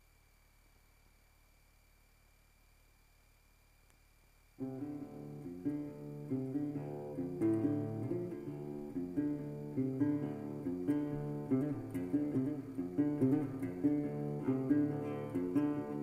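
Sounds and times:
guitar background music: 4.6s - 16.0s.

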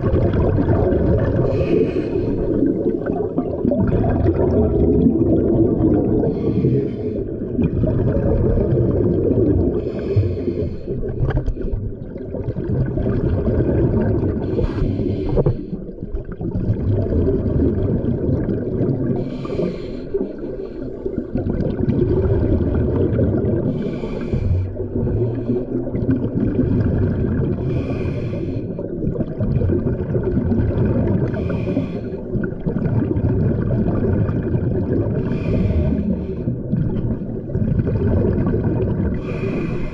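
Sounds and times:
exhaust bubbles rushing: 0.0s - 6.7s, 7.3s - 10.0s, 10.9s - 14.6s, 16.0s - 19.2s, 21.2s - 23.8s, 24.6s - 27.8s, 28.9s - 31.4s, 32.3s - 39.4s
low rumble of water: 0.0s - 39.9s
diver breathing through regulator: 1.4s - 3.2s, 6.2s - 7.5s, 9.8s - 11.8s, 14.4s - 15.9s, 19.2s - 21.2s, 23.7s - 26.0s, 27.6s - 28.9s, 31.3s - 32.3s, 35.1s - 36.6s, 39.1s - 39.9s.

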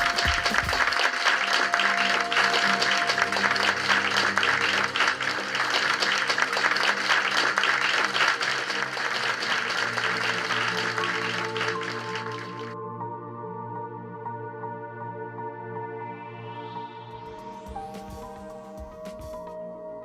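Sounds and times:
audience applauding: 0.0s - 12.8s
background music: 0.0s - 20.0s.

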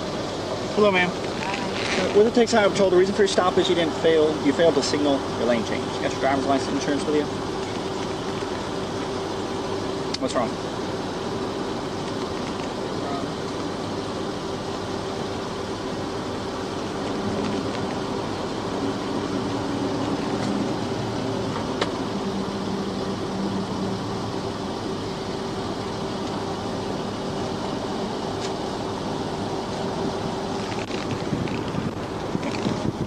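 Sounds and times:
air-conditioning fan: 0.0s - 33.0s
car engine idling: 0.0s - 33.0s
constant tone: 0.0s - 33.0s.

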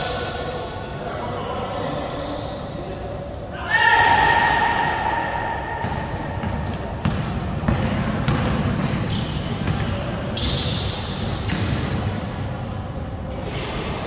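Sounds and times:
basketball bouncing: 5.8s - 11.9s.

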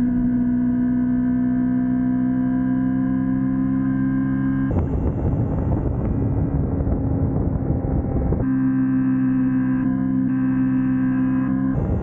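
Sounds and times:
motorcycle engine cruising: 0.0s - 12.0s
wind rushing on microphone: 4.7s - 8.5s.

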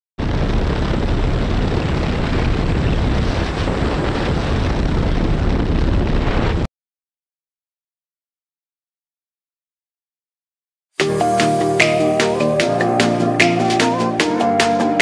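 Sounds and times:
wind buffeting microphone: 0.2s - 6.7s.

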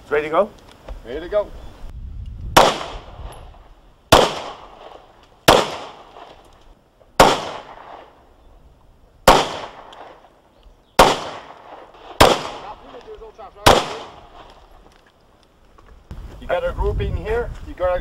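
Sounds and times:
gunshots with echo: 2.6s - 3.2s, 4.1s - 6.4s, 7.2s - 8.2s, 9.3s - 10.2s, 11.0s - 12.9s, 13.6s - 14.5s.

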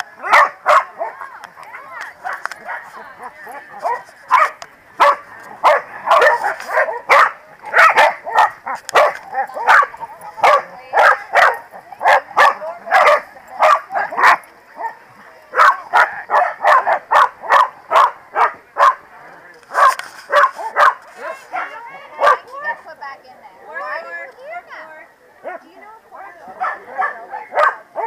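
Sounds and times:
dogs barking: 0.2s - 1.3s, 2.2s - 19.0s, 19.7s - 22.5s, 26.5s - 28.0s.

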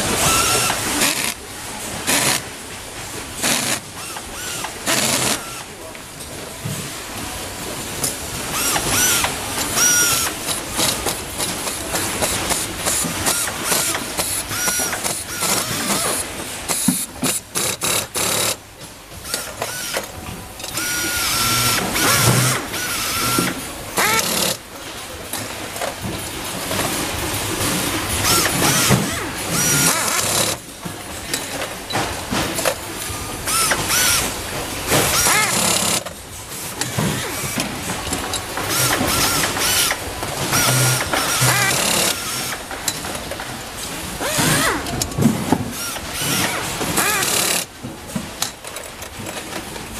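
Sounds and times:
power screwdrivers whirring: 0.2s - 1.4s, 3.4s - 5.7s, 8.5s - 11.5s, 12.2s - 18.6s, 19.2s - 20.1s, 20.7s - 24.6s, 28.2s - 30.6s, 33.4s - 36.1s, 36.8s - 37.7s, 38.6s - 42.6s, 44.2s - 45.0s, 45.7s - 47.7s.

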